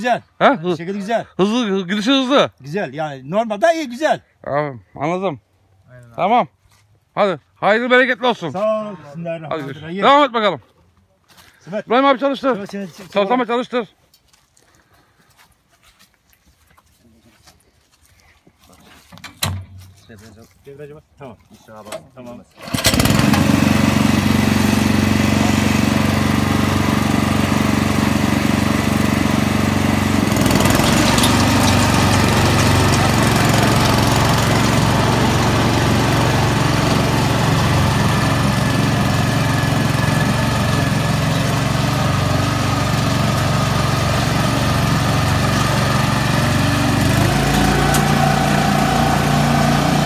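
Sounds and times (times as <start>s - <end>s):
harvester small engine running: 22.6s - 50.0s.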